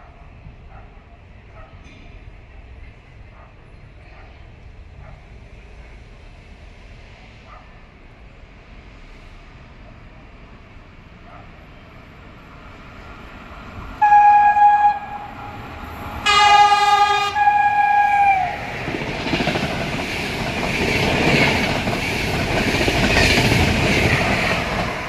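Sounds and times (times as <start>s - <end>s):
train wheels clattering on rail: 1.5s - 4.4s, 18.7s - 25.0s
train horn blasts: 14.0s - 18.8s.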